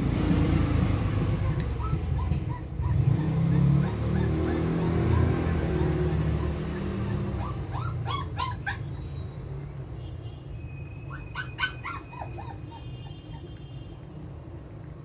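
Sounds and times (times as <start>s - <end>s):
puppy whimpering in high yelps: 1.4s - 9.0s, 11.0s - 13.5s.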